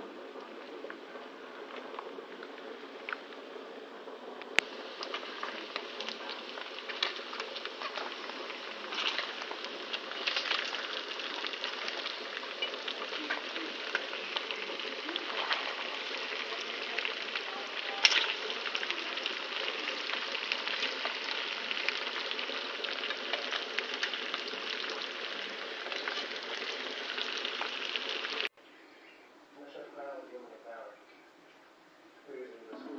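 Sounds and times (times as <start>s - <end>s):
food sizzling in hot oil: 4.6s - 28.5s.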